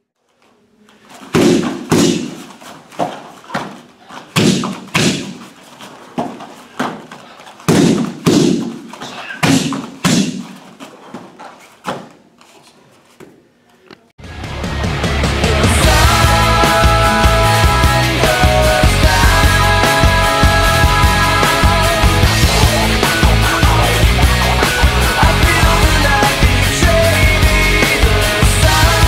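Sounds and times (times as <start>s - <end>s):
kicks smacking pads: 1.3s - 2.4s, 4.4s - 5.4s, 7.7s - 10.5s.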